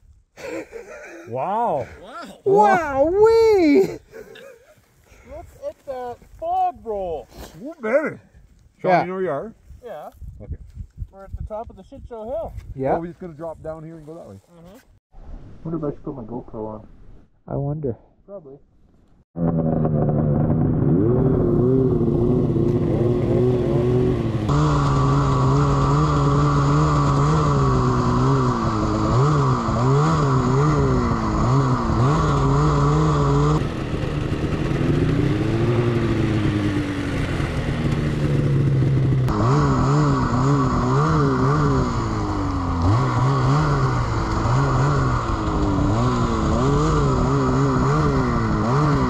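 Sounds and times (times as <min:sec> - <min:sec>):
snowmobile engine revving: 0:00.4 - 0:08.2, 0:19.4 - 0:49.0.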